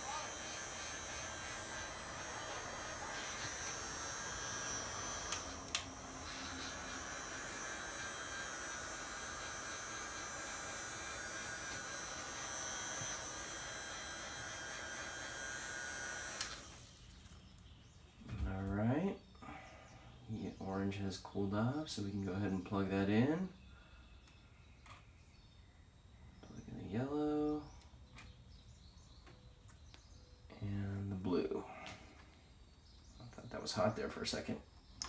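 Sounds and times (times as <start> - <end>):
heat gun fan blowing: 0.0 - 23.6
sharp clicks: 5.2 - 5.9, 16.3 - 16.7.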